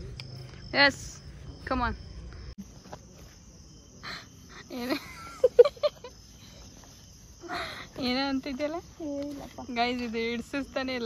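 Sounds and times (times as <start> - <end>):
crickets chirring: 0.0 - 11.0
woman laughing: 4.5 - 6.6.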